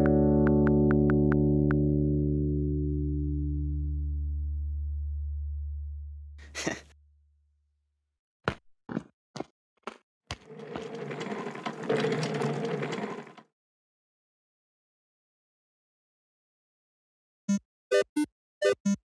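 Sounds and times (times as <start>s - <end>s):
low synth chord: 0.0s - 6.1s.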